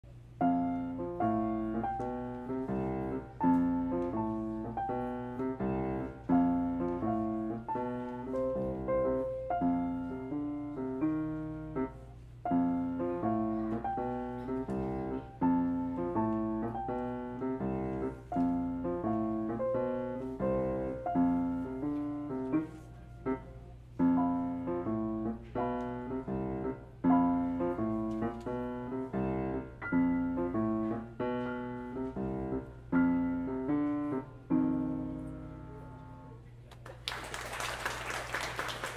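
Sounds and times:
piano duet: 0.0 - 38.9.

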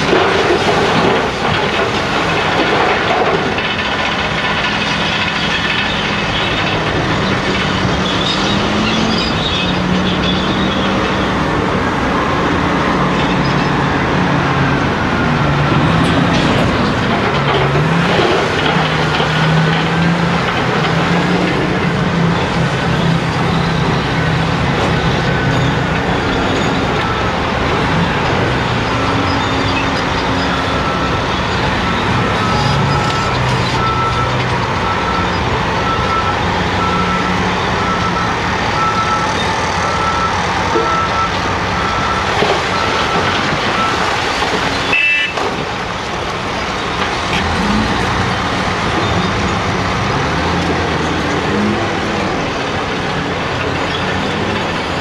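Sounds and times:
heavy diesel engines running: 0.0 - 55.0
reversing alarm beeping: 29.0 - 44.1.

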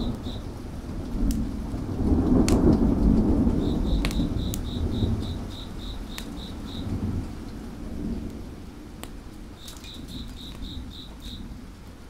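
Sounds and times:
cricket chirping: 0.0 - 0.5, 3.5 - 7.1, 9.6 - 11.6
wood fire popping: 0.0 - 11.5
steady rain: 0.0 - 12.0
thunder rumbling: 0.0 - 12.0.

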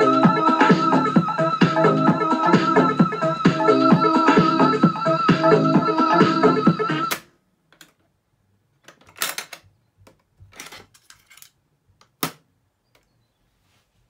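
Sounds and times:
music from boombox: 0.0 - 7.2.

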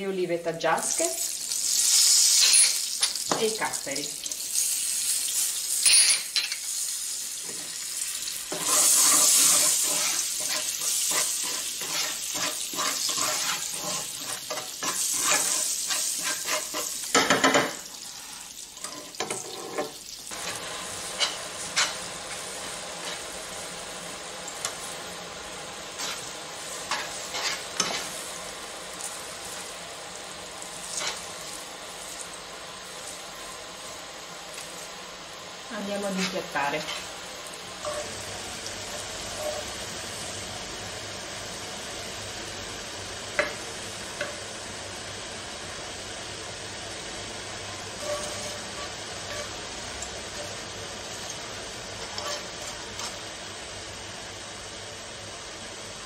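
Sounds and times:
spaghetti sizzling in frying pan: 0.6 - 56.0.

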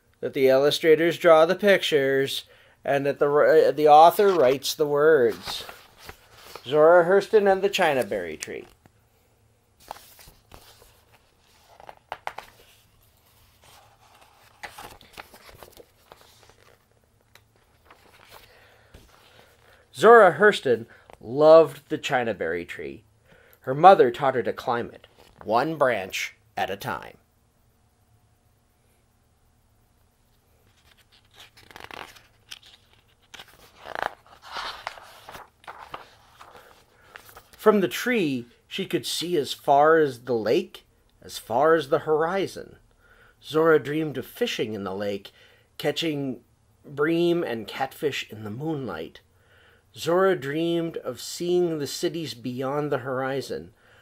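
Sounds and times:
book pages turning and rustling: 4.0 - 8.9, 9.8 - 19.7, 30.6 - 37.6
crisp page snaps: 11.7 - 12.6, 30.8 - 36.5.

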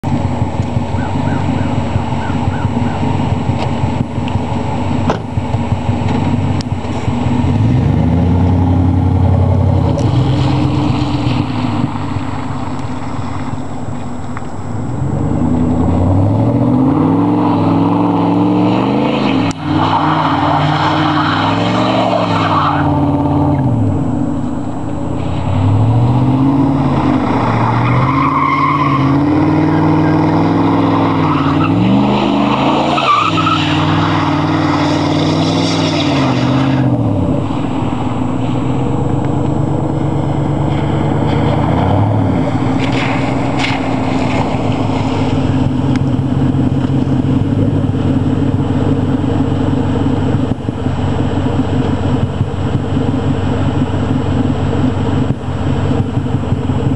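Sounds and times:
truck engine revving: 0.0 - 56.9
tyres hissing on wet pavement: 9.5 - 14.6, 24.0 - 30.2, 31.0 - 56.9.

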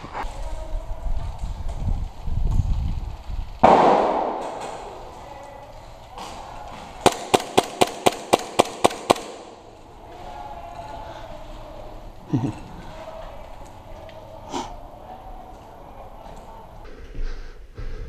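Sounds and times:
loud bang: 3.6 - 5.1.

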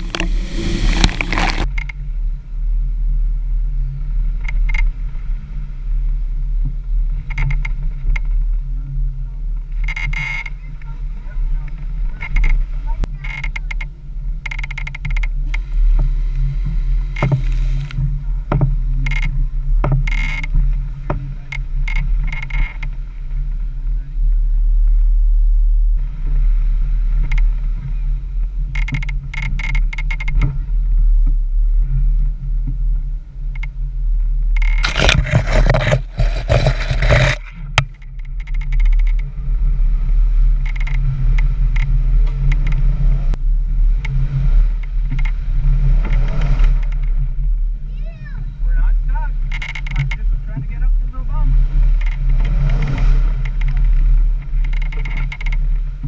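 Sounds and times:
loud rushing noise: 0.0 - 1.7
off-road vehicle engine running: 0.0 - 56.0
knocks and rattles: 34.6 - 39.3, 52.0 - 55.8.

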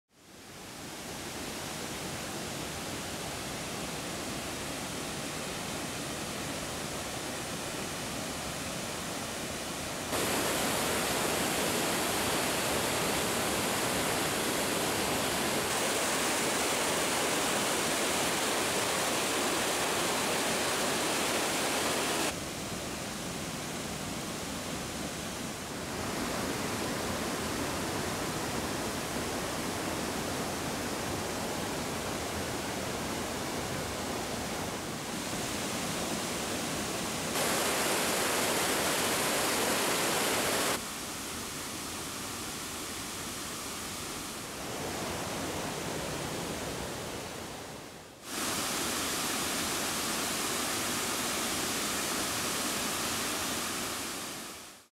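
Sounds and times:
water rushing over boulders: 0.7 - 54.9.

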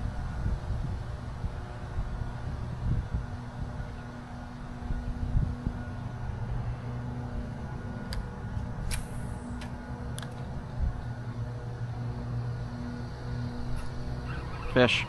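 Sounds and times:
wind rumbling on microphone: 0.0 - 9.2
low drone: 1.1 - 15.0.

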